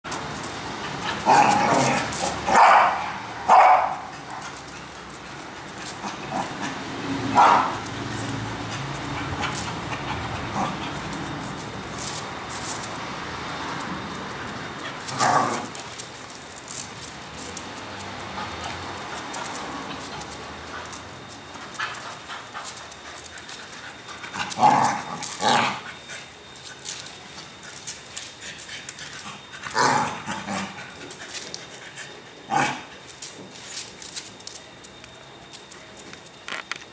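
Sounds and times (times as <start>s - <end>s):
claws clicking on concrete: 0.1s - 2.6s, 7.4s - 13.0s, 13.6s - 25.7s
dog barking: 2.5s - 4.1s, 7.4s - 7.8s.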